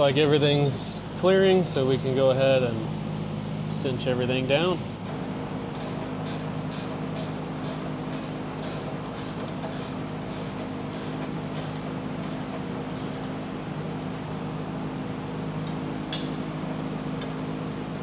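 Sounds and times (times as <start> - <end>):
ratchet wrench clicking: 5.8 - 13.3.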